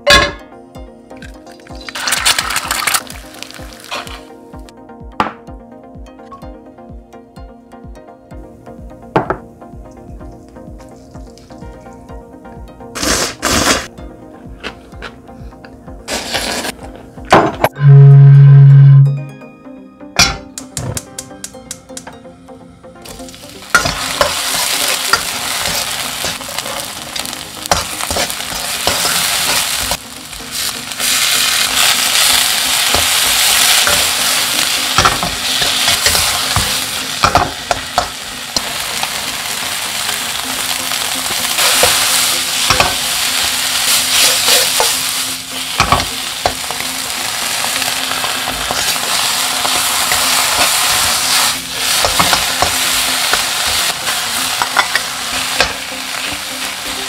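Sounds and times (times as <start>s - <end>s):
food sizzling in a wok: 1.4s - 4.4s, 13.0s - 13.9s, 16.1s - 16.8s, 23.0s - 57.0s.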